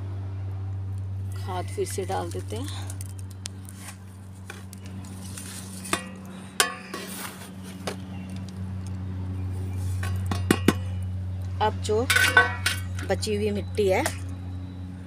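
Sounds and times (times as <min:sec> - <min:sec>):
steady low hum: 0:00.0 - 0:15.0
trowel scraping compost: 0:03.7 - 0:06.2, 0:06.8 - 0:08.0.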